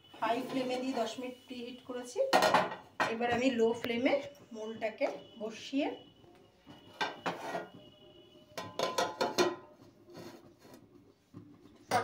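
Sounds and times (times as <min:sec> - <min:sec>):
metal cookware clanking: 0:08.6 - 0:09.8.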